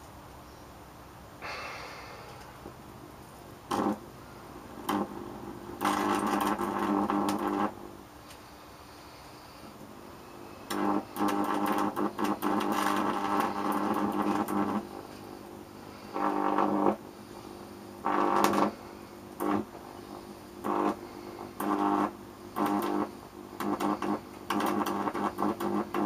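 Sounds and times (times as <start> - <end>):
electric arc buzzing: 3.6 - 8.0, 9.5 - 26.0.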